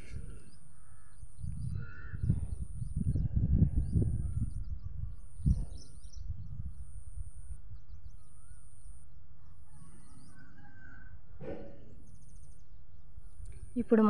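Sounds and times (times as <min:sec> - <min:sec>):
birds chirping and whistling: 0:00.0 - 0:06.9, 0:09.7 - 0:13.6
high thin whine: 0:11.4 - 0:12.1.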